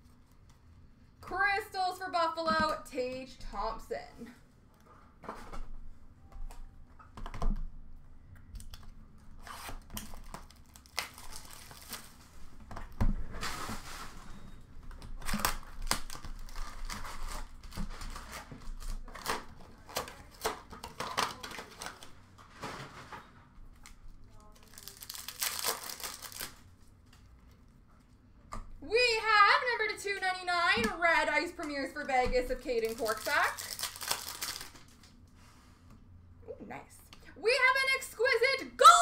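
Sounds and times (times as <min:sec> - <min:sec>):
foil wrappers tearing and crinkling: 0:09.4 - 0:12.3, 0:15.1 - 0:22.2, 0:23.8 - 0:26.8, 0:32.5 - 0:35.1.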